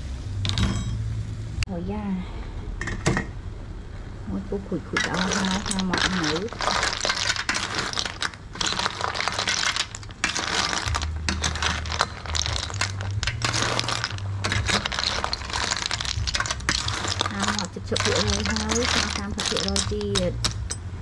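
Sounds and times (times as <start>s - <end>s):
snail shells clattering in a metal bowl: 4.8s - 21.0s
metal ladle stirring: 4.9s - 20.9s.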